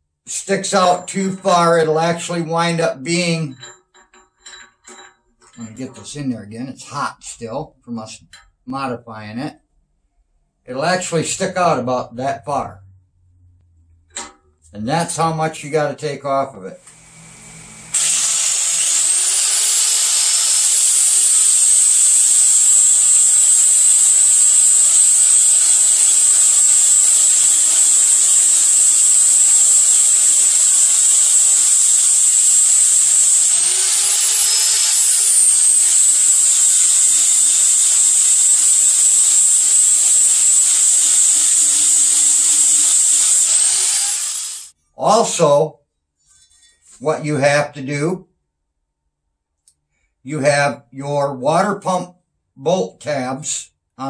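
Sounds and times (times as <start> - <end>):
angle grinder grinding metal: 16.8 - 44.8.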